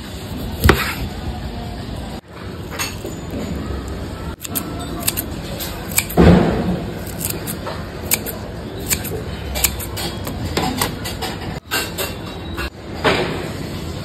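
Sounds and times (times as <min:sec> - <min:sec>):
scissors snipping: 0:04.4 - 0:06.2, 0:07.0 - 0:10.4.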